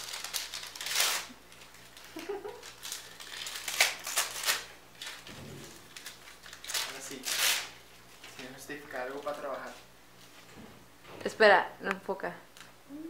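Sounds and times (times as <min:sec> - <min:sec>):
wrapping paper tearing and rustling: 0:00.0 - 0:09.9.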